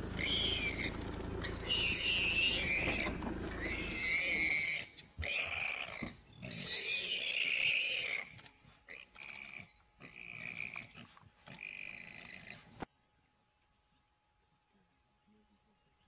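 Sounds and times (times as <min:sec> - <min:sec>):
animal crying out: 0:00.2 - 0:08.3.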